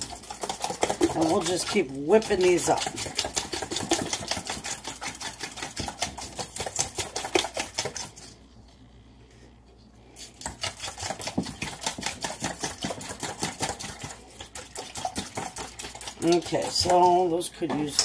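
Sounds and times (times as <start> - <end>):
whisk clicking in metal bowl: 0.0 - 8.3, 10.4 - 18.0.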